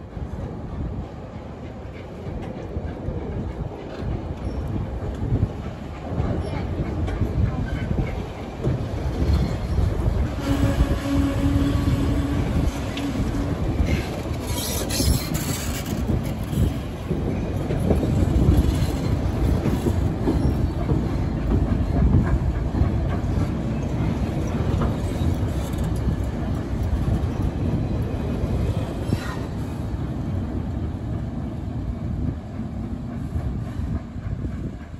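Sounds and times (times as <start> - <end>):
train wheels rumbling on rails: 0.0 - 34.9
wheel squeals: 13.9 - 16.7.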